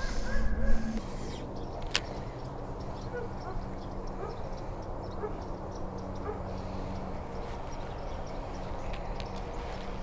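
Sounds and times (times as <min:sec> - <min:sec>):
dog whining: 0:00.0 - 0:01.1.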